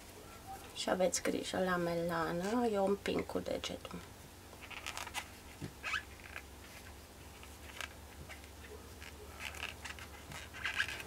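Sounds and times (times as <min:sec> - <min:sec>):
crochet hook scratching yarn: 0:05.8 - 0:11.0.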